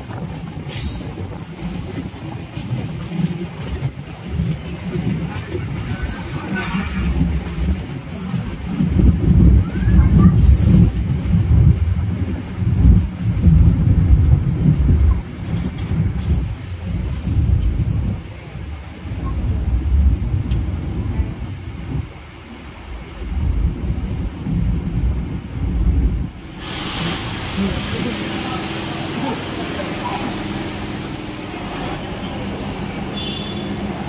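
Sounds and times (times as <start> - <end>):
train rumbling on track: 0.0 - 34.0
high-pitched wheel squeal: 26.3 - 27.8.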